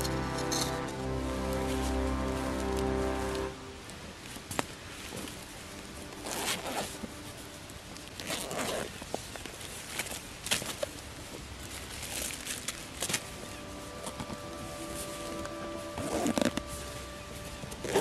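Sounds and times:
fabric rustling: 0.0s - 18.0s
zipper: 6.2s - 7.0s, 8.2s - 9.0s, 16.0s - 16.9s, 17.8s - 18.0s.

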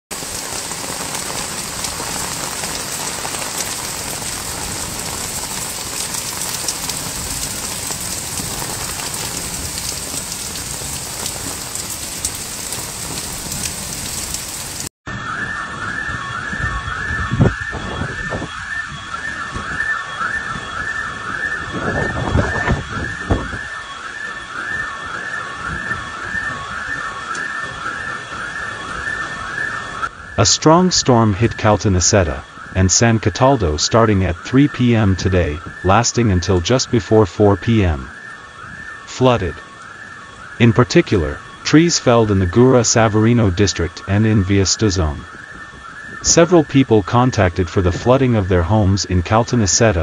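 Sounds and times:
rushing water: 0.1s - 14.9s
heavy rain pouring: 0.1s - 50.0s
electronic alarm warbling: 0.3s - 50.0s.

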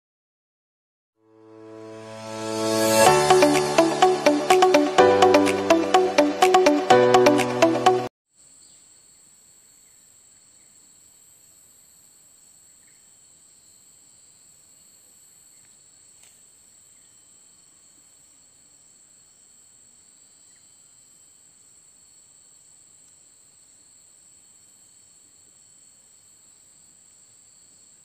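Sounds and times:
high-pitched insect chorus: 8.4s - 28.0s.

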